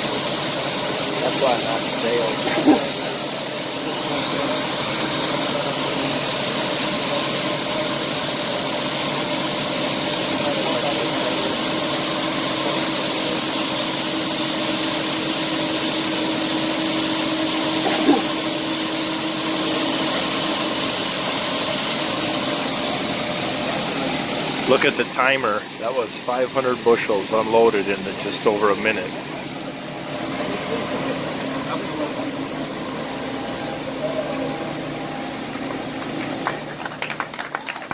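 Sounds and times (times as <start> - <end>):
grain pouring hiss: 0.0 - 31.2
combine engine droning: 17.4 - 37.4.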